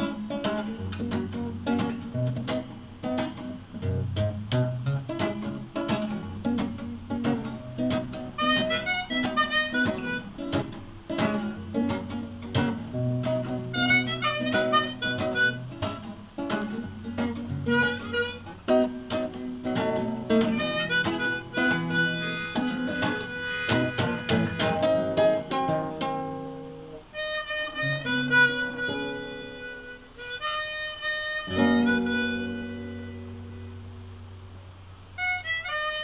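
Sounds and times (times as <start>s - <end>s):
strummed acoustic guitar: 0.0s - 36.0s
harmonica playing: 7.9s - 11.3s, 13.3s - 16.5s, 17.5s - 25.6s, 27.1s - 33.7s, 35.2s - 36.0s.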